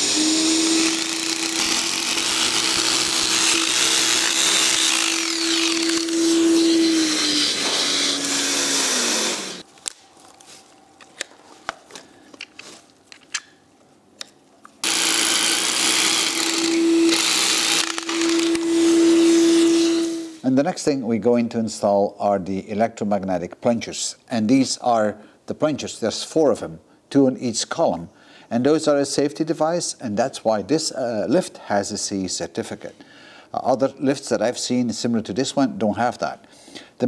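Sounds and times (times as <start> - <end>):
hammer drill boring into concrete: 0.0 - 9.6, 14.8 - 20.1
vacuum cleaner sucking: 0.0 - 9.6, 14.8 - 20.4.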